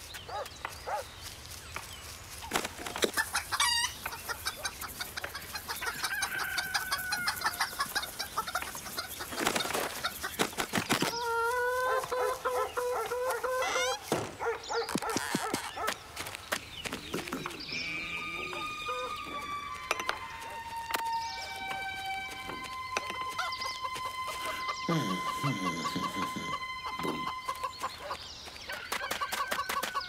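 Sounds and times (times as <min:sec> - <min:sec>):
chickens clucking: 0:02.4 - 0:30.0
rooster crowing: 0:05.8 - 0:07.7, 0:11.1 - 0:14.0, 0:17.8 - 0:28.1.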